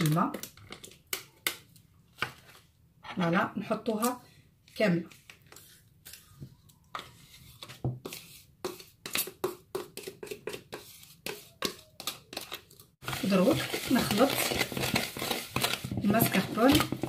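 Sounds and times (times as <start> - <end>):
metal spoon scraping plastic tub: 7.0 - 17.0.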